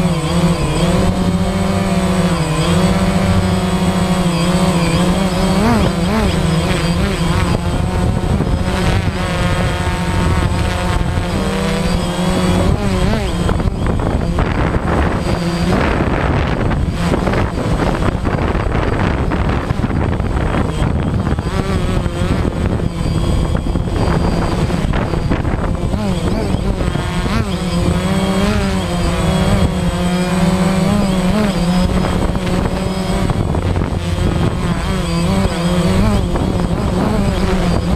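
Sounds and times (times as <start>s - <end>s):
quadcopter propellers whining: 0.0s - 37.9s.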